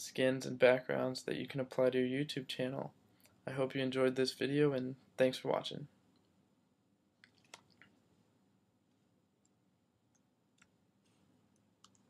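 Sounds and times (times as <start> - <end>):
faint clicks: 8.9 - 12.0.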